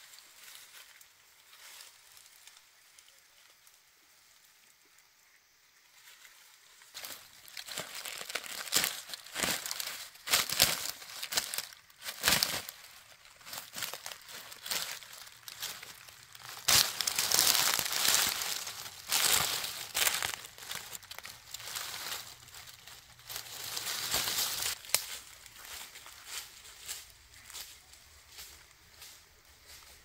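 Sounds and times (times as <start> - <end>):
hands crumpling dry leaves: 6.1 - 30.0.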